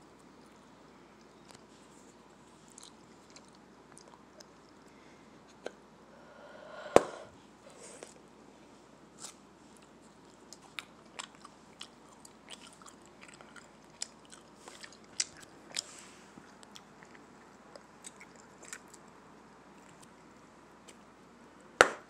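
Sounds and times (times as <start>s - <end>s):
person chewing gum: 0.1s - 4.9s, 9.2s - 21.0s.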